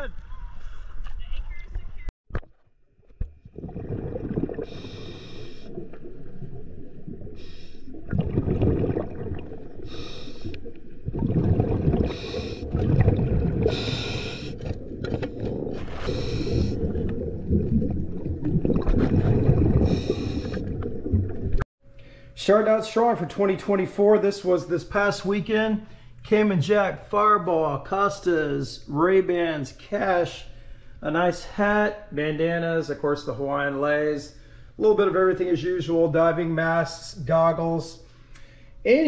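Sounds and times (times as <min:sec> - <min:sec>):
muffled bubbling and rumble: 0:03.2 - 0:21.6.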